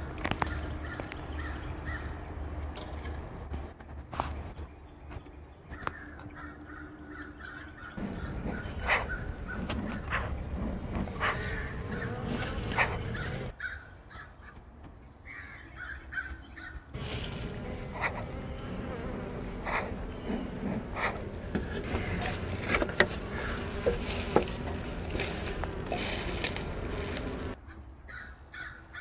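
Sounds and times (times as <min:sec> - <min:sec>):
birds calling: 0:00.0 - 0:02.7, 0:04.2 - 0:29.0
honeybees buzzing: 0:07.1 - 0:13.6, 0:17.0 - 0:27.6.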